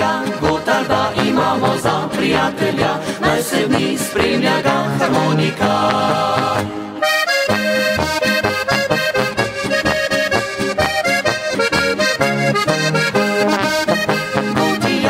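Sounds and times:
accordion playing folk music: 0.0 - 15.0
bass and rhythm backing: 7.1 - 15.0.

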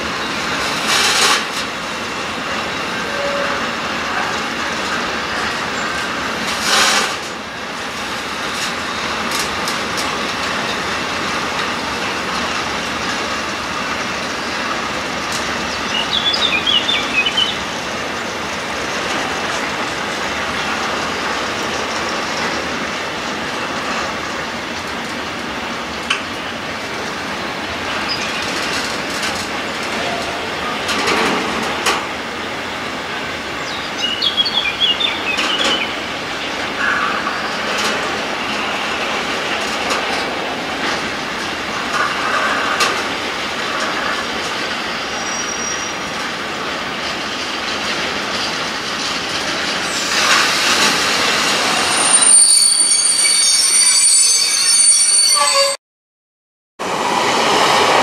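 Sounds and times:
freight train wagons rumbling: 0.0 - 55.8, 56.8 - 58.0
high metal squeals: 3.0 - 3.8, 51.2 - 55.8.

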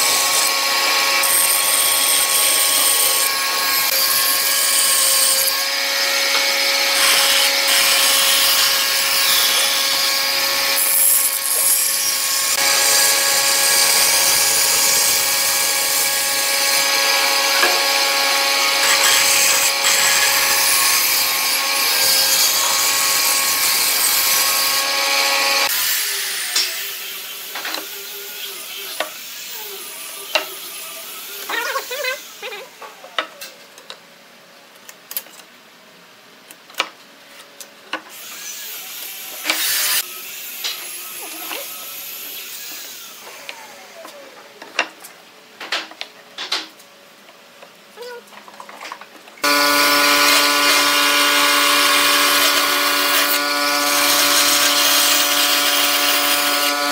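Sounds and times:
bandsaw cutting wood: 0.0 - 27.8, 49.4 - 56.9.

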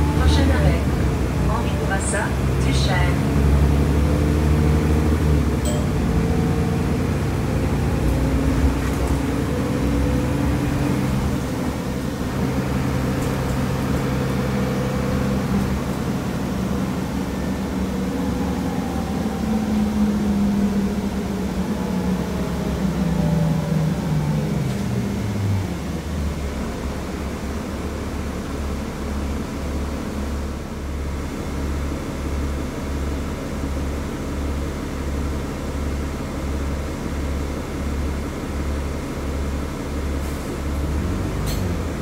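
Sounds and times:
bus engine hum: 0.0 - 42.0
road noise: 0.0 - 42.0.

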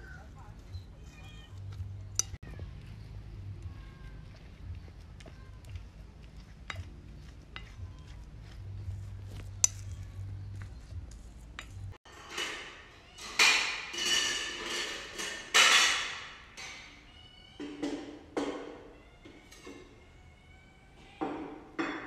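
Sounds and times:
kittens meowing: 0.0 - 1.8.

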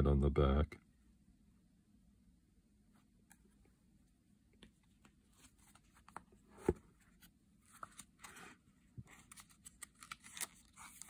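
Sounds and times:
paper pages rustling: 4.8 - 11.0.

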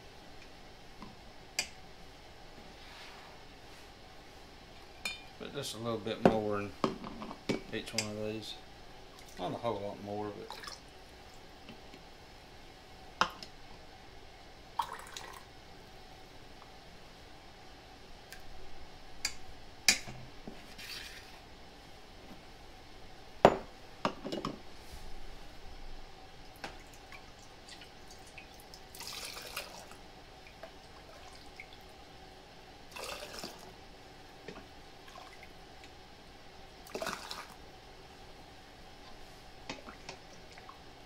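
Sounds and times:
glass clinking: 5.0 - 5.3, 23.4 - 23.7
broth pouring into jars: 28.9 - 29.9, 32.9 - 33.6, 36.9 - 37.6.

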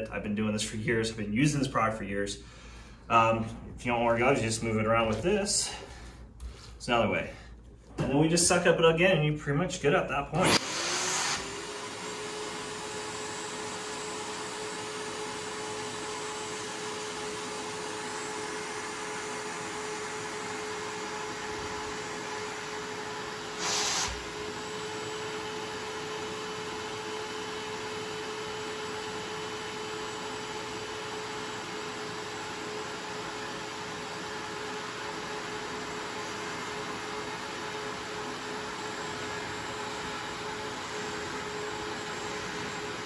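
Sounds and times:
carpet extraction vacuum whining: 10.3 - 43.0.

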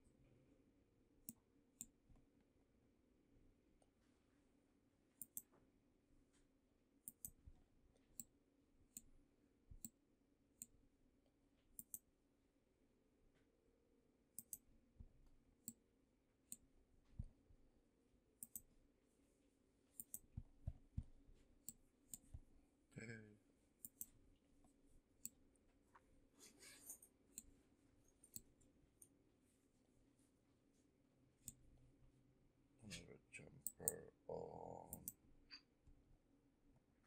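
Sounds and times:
computer mouse clicking: 5.2 - 5.6, 7.0 - 7.5, 11.8 - 12.1, 14.4 - 14.7, 18.4 - 18.7, 20.0 - 20.4, 21.6 - 22.4, 23.8 - 24.2, 28.2 - 29.2, 34.9 - 35.2.

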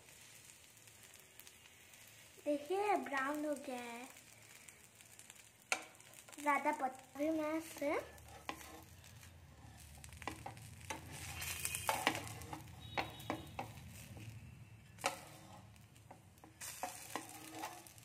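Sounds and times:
crepe sizzling on griddle: 0.0 - 18.0
metal spatula scraping pan: 7.6 - 18.0.

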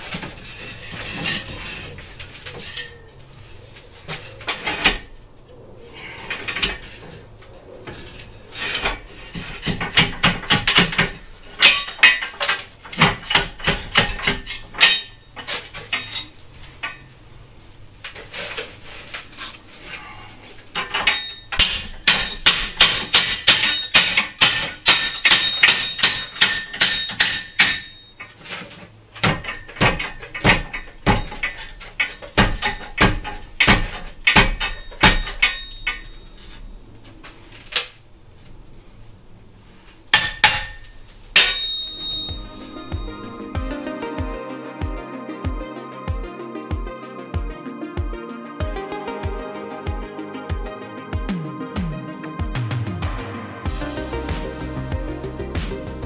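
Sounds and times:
hammer striking steel chisel: 21.0 - 28.0, 29.2 - 36.2.

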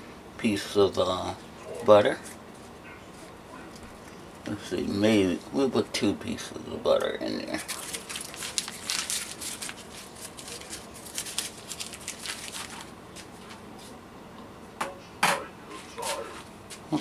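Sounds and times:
crinkling and rustling of handling: 6.9 - 14.0.

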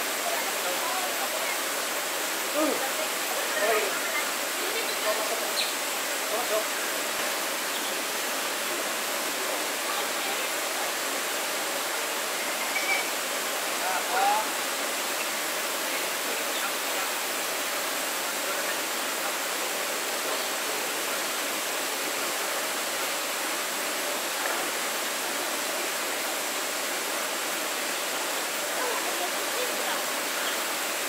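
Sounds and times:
waterfall rushing: 0.0 - 31.0.

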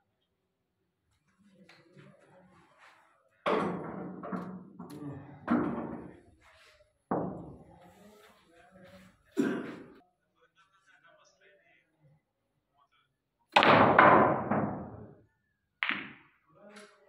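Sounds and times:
loud knocks: 13.6 - 15.0.

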